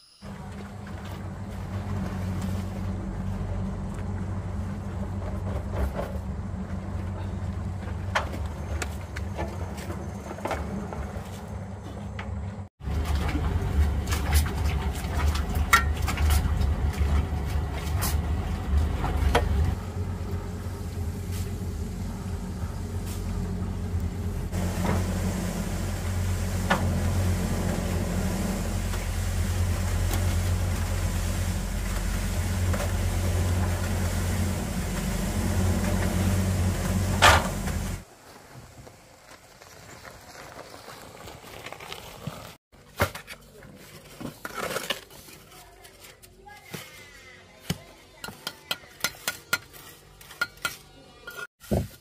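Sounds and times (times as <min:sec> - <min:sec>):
engine running: 0:00.2 - 0:39.0.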